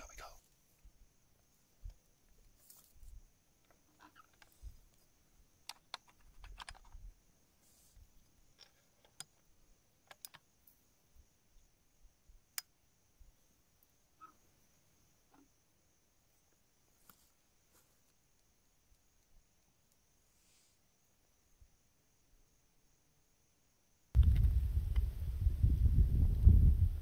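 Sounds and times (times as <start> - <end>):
faint high hiss: 0.0 - 6.0, 7.0 - 27.0
rifle and gear clicks and rustles: 1.9 - 7.1.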